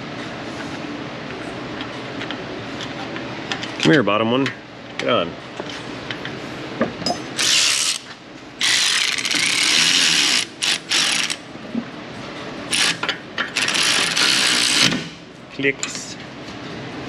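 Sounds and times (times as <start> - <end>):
ratchet spinning bolts: 7.4 - 11.4, 12.7 - 14.9.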